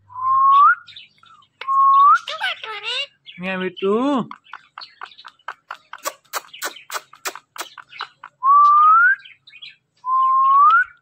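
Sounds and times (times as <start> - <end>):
parrot whistling: 1.6 - 3.1
parrot clicking: 4.2 - 8.2.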